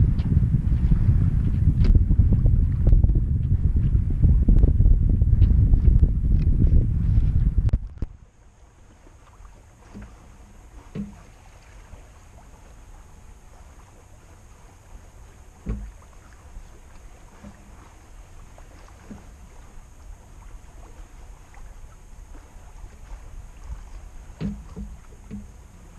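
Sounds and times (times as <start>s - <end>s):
water rumbling along hull: 0.0s - 25.9s
short knocks: 10.9s - 11.3s, 15.6s - 16.0s, 24.4s - 25.6s.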